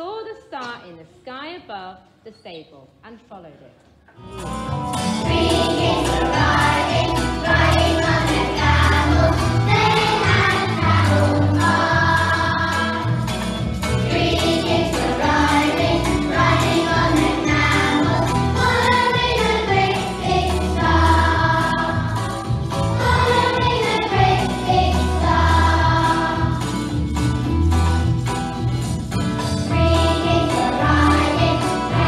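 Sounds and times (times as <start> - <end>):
children's choir singing: 5.1 - 27.1, 29.6 - 32.0.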